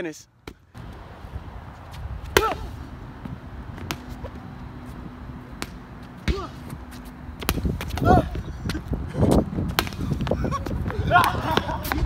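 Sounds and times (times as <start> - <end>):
ball kicked on hard court: 2.2 - 4.4, 5.6 - 8.8, 9.7 - 12.0
person shouting: 2.3 - 2.7, 6.3 - 6.6, 8.0 - 8.4, 11.0 - 11.4.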